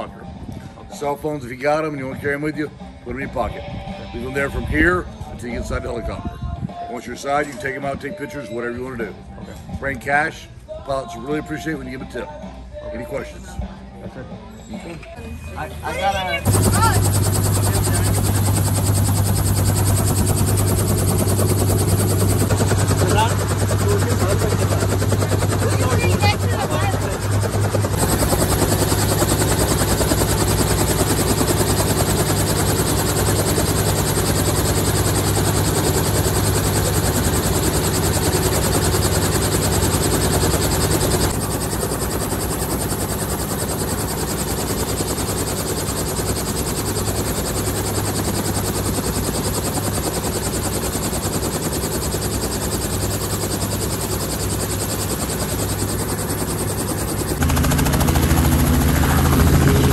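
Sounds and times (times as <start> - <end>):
helicopter engine and rotor: 14.4 - 59.9.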